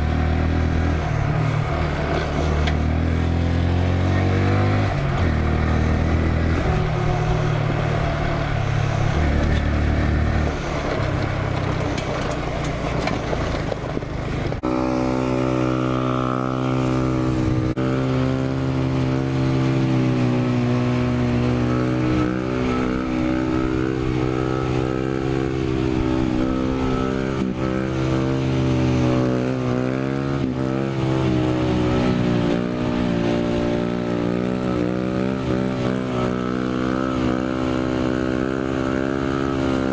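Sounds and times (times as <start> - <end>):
small motorcycle engine running: 0.0 - 39.9.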